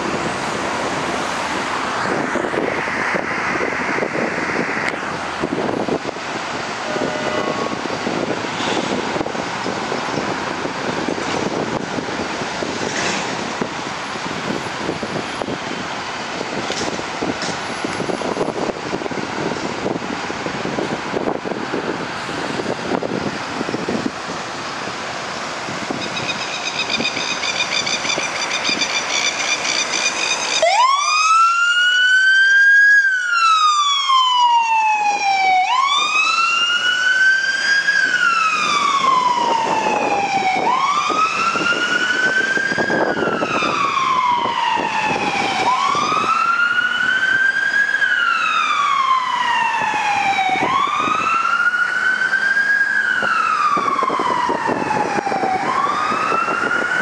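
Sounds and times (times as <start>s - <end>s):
truck engine: 0.0s - 34.2s
fire engine siren wailing: 0.0s - 57.0s
traffic: 0.0s - 57.0s.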